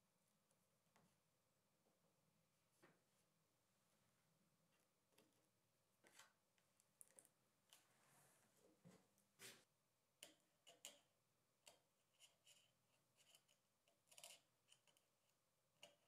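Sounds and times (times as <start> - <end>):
blade clicking and scratching: 12.2 - 15.0.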